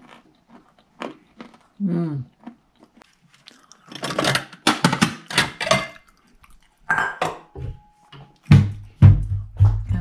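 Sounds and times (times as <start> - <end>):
ceramic dishes clinking: 6.9 - 7.6.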